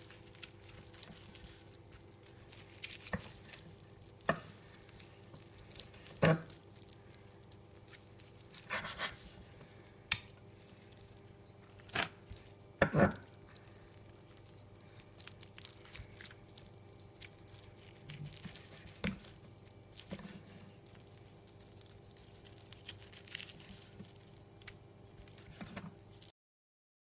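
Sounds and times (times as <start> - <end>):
low steady hum: 0.0 - 26.3
knife slicing meat: 7.8 - 9.5, 17.4 - 19.4.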